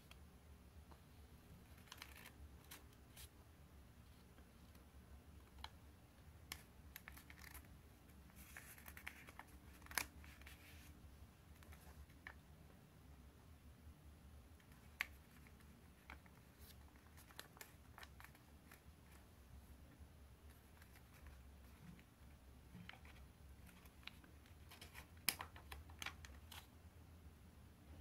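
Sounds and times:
paper crinkling and folding: 1.6 - 3.3, 6.5 - 7.7, 8.3 - 10.9, 14.7 - 19.3, 22.8 - 26.7
paper crackling: 1.7 - 3.3, 6.5 - 7.7, 8.4 - 10.9, 14.7 - 19.3.

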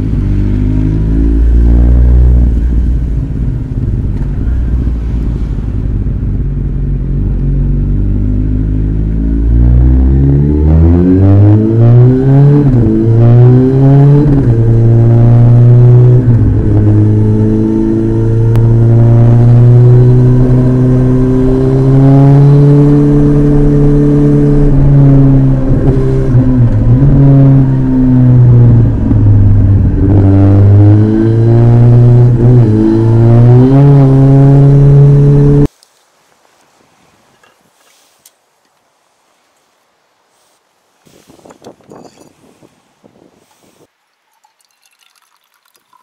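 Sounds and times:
motorcycle engine revving: 0.0 - 35.7.

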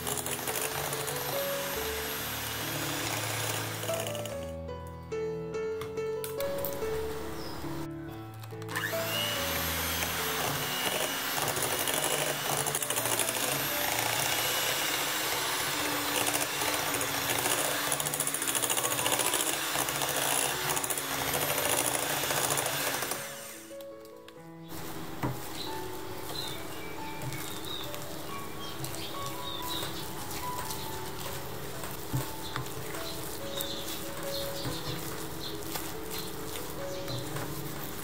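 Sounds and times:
electric hand mixer churning dough: 0.0 - 4.5, 8.7 - 23.8.

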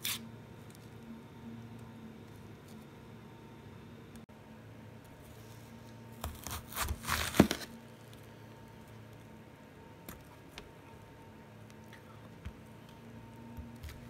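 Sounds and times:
knife crunching through onion: 0.0 - 0.2, 6.2 - 7.8.

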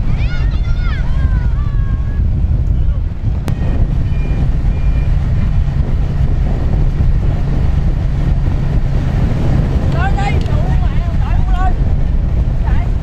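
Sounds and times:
vehicle engine running: 0.0 - 13.0
wind buffeting microphone: 0.0 - 13.0.

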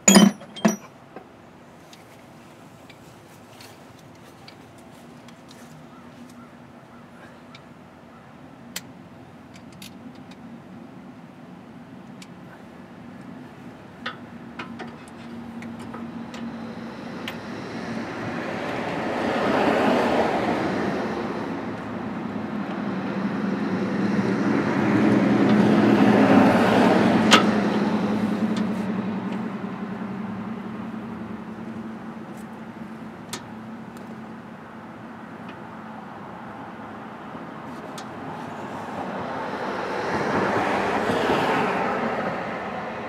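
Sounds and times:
vehicles passing by: 0.0 - 43.0.

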